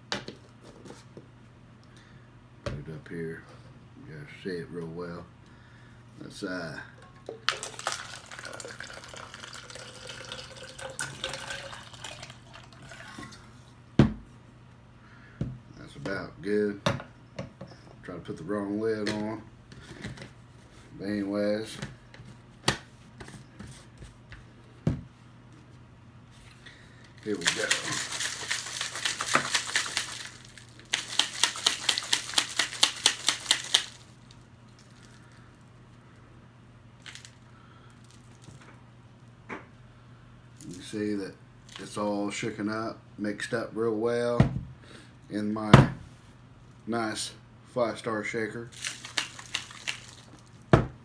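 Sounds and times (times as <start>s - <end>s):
shaker bottle rattling and sloshing: 7.1s - 13.5s, 27.2s - 35.3s, 37.0s - 37.4s, 48.7s - 50.7s
water pouring into cup: 7.3s - 13.6s, 27.2s - 32.7s, 48.8s - 50.4s.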